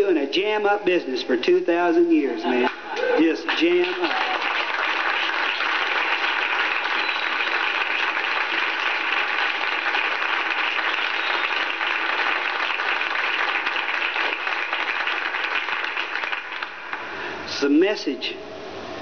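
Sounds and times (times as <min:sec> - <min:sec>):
audience applauding: 0:02.5 - 0:17.4.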